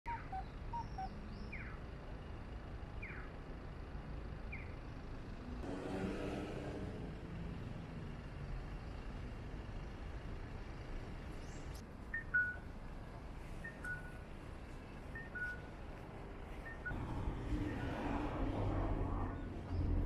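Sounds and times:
low city traffic hum: 0.0s - 20.0s
pedestrian crossing signal cuckoo call: 0.1s - 1.8s, 12.1s - 12.7s, 13.6s - 14.3s.

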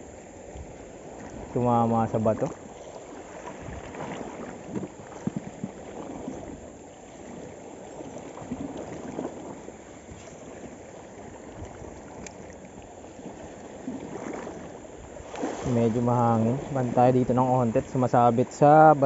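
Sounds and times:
wind buffeting microphone: 0.0s - 10.6s
water washing against rocks: 11.3s - 19.0s.

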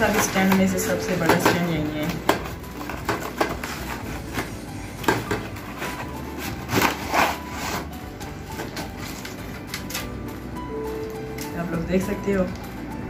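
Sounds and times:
cardboard box being torn open: 5.7s - 8.0s.

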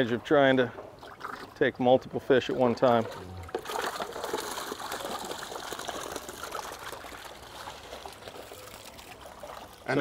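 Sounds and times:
water sloshing and splashing: 0.8s - 1.6s, 2.4s - 10.0s
fish splashing in net: 3.4s - 9.9s.

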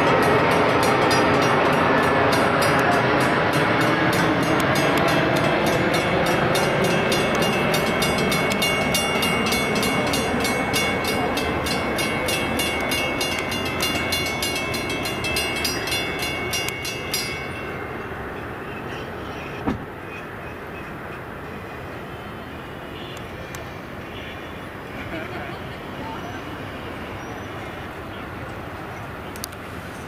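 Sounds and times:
crossing bell ringing: 0.0s - 18.4s
train rumble: 0.0s - 30.0s.

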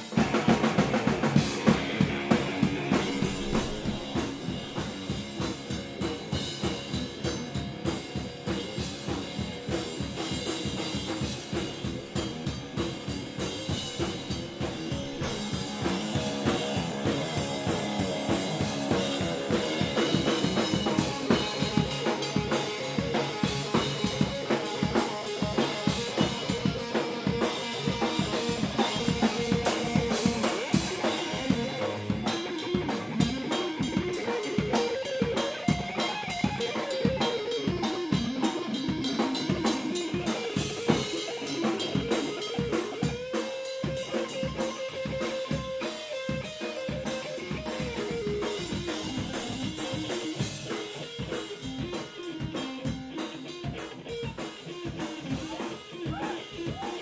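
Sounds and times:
drum kit playing: 0.0s - 57.0s
electric guitar: 0.0s - 57.0s.

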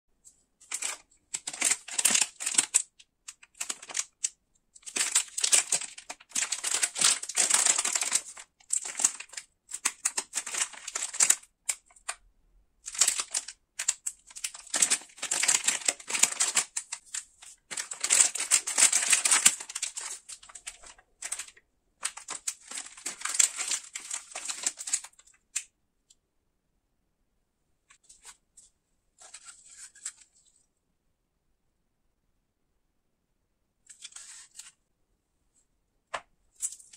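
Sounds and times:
plastic candy wrapper crinkling: 0.6s - 12.2s, 12.8s - 25.7s.

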